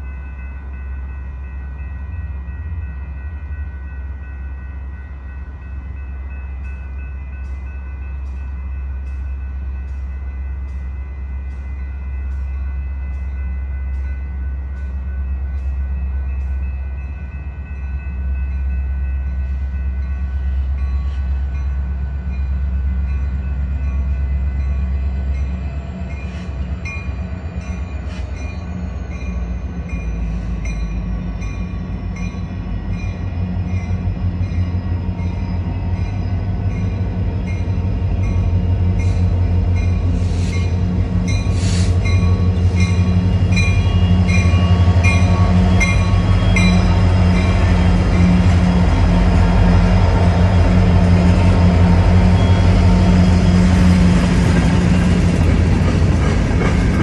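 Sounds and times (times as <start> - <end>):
diesel locomotive rumble: 0.0 - 57.0
train wheel clicks: 54.5 - 57.0.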